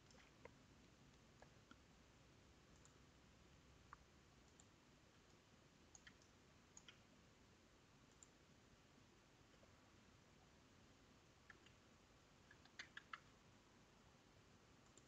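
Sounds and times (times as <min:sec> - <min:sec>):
computer mouse clicks: 0:00.0 - 0:01.8, 0:02.7 - 0:03.0, 0:03.9 - 0:07.0, 0:08.1 - 0:08.4, 0:11.4 - 0:11.8, 0:12.4 - 0:13.3.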